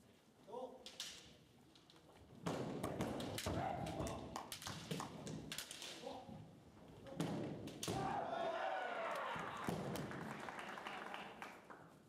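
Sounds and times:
bamboo swords clacking: 0.8s - 2.0s, 3.2s - 6.2s.

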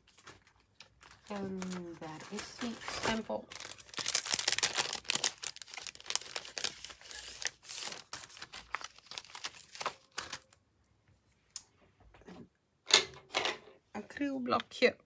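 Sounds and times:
plastic sheets crinkling: 0.0s - 10.6s.

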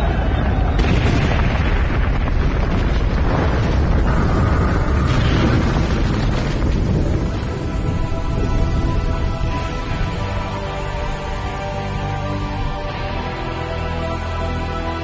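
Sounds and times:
rumbling explosion: 0.0s - 9.4s.

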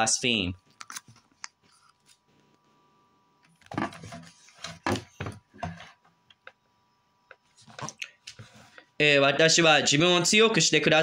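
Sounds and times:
faint steady hum: 0.0s - 11.0s
handling bumps and rustles: 3.6s - 6.1s.

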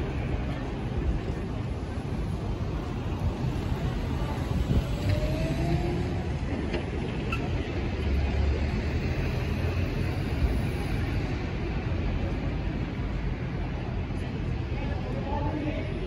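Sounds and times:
bus engine rumble: 0.0s - 16.0s
city street traffic: 0.0s - 16.0s.

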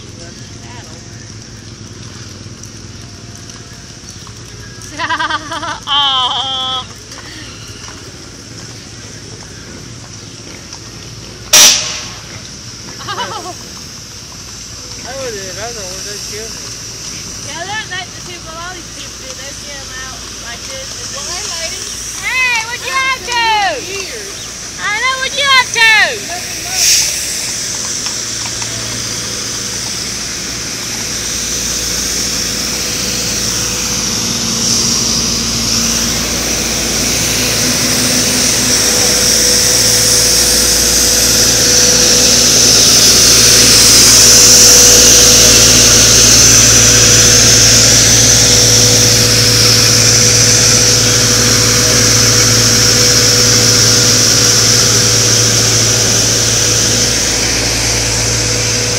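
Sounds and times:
heavy vehicle engine running: 0.0s - 58.9s
high hiss or whine: 0.0s - 58.9s.

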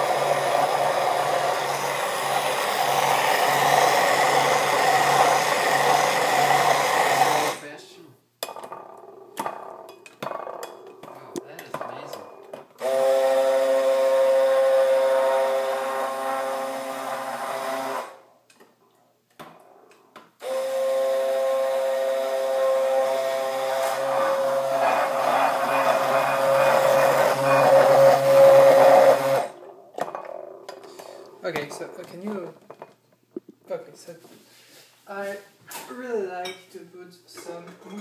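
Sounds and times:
stick blender motor whine: 0.0s - 7.6s, 12.8s - 18.2s, 20.4s - 31.2s.

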